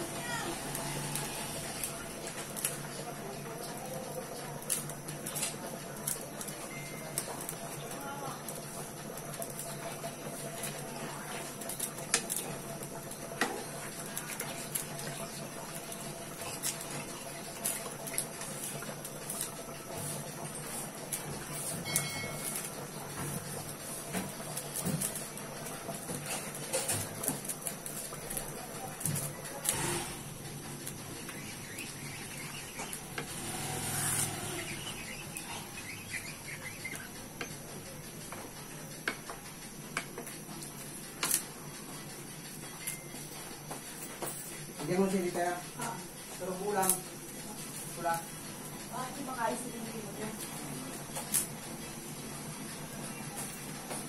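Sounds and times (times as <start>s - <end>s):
spatula stirring food in wok: 0.0s - 44.8s
wooden spatula stirring liquid: 7.2s - 21.9s
high bird chirps: 31.0s - 37.2s.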